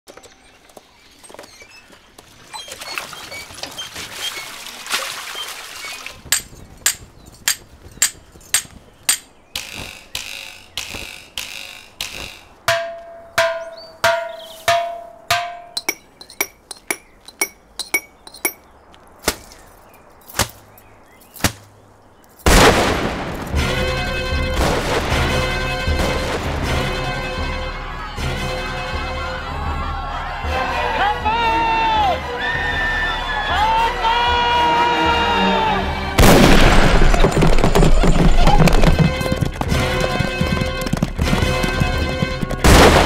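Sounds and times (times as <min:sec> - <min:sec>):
rasping strokes: 0:06.3 - 0:18.6
sharp knocks and strikes: 0:06.3 - 0:18.6.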